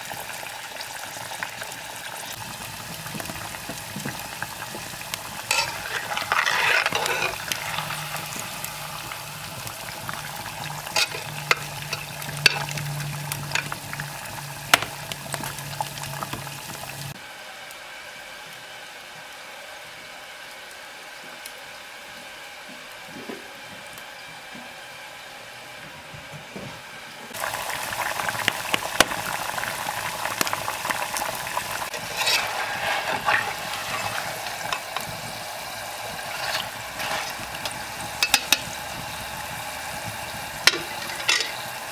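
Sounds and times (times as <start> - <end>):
potatoes deep-frying in oil: 0.0 - 25.9, 27.0 - 41.9
spoon stirring: 5.5 - 8.0, 11.0 - 12.7, 31.9 - 35.0.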